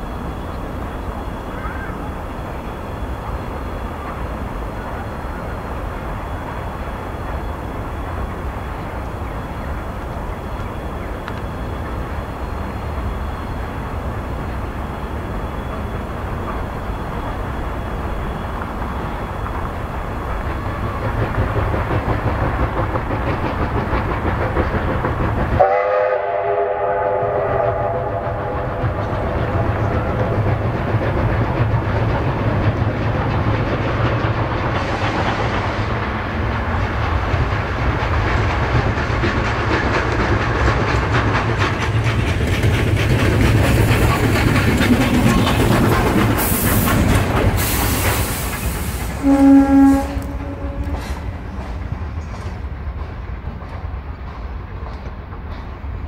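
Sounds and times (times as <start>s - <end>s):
steam hissing: 0.0s - 53.1s
steam locomotive running: 0.0s - 56.0s
locomotive chord whistle: 25.6s - 30.4s, 47.6s - 51.6s.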